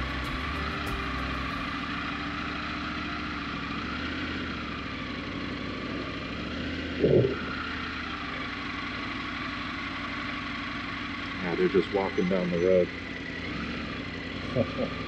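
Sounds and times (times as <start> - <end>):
motorcycle engine running slowly: 0.0 - 15.0.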